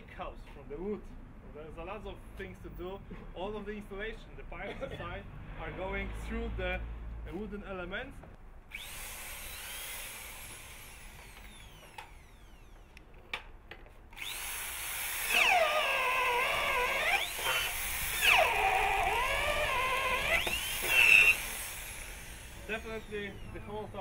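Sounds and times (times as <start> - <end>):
power drill boring into wood: 8.7 - 12.9, 14.2 - 24.0.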